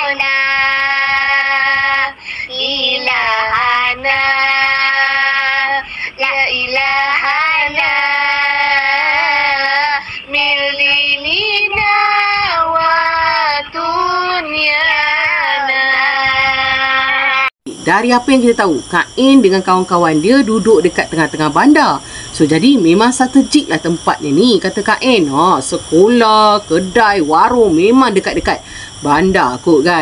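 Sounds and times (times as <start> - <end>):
high child-like voice singing: 0.0 - 17.5.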